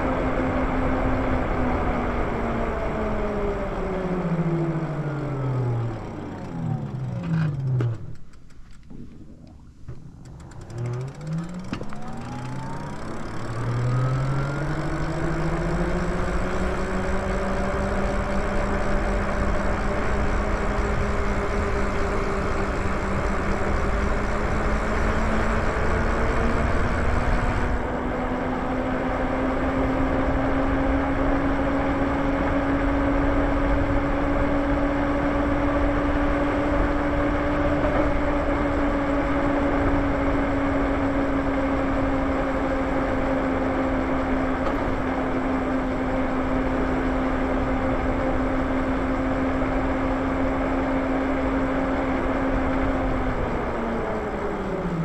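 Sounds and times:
wind and tyre noise: 0.0 - 55.0
electric motor whining: 2.7 - 8.4, 9.8 - 27.9.

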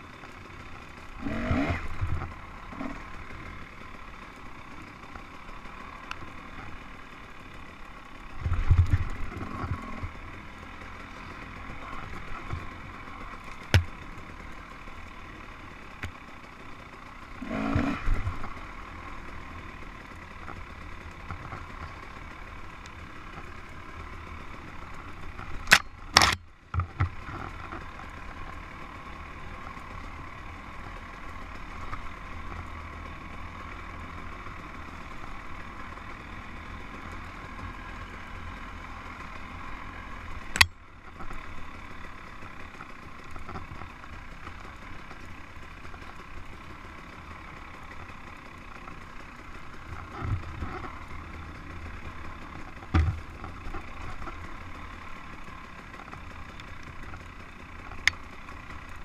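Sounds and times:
dirt bike engine running: 0.0 - 59.0
bike knocking over bumps: 13.6 - 14.0, 52.8 - 53.6.

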